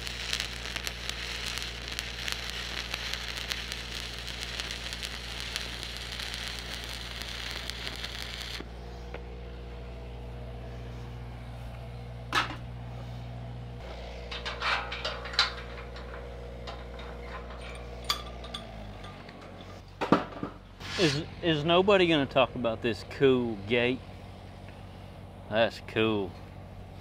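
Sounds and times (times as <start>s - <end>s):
welding arc crackling and sizzling: 0.0s - 8.8s, 13.8s - 19.8s
welder engine humming: 0.0s - 27.0s
metallic clank: 13.9s - 21.3s
metallic clinks: 14.3s - 19.8s.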